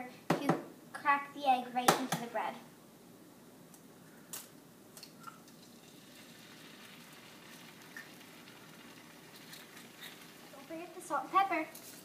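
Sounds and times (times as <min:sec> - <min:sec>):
egg sizzling on griddle: 0:05.4 - 0:12.0.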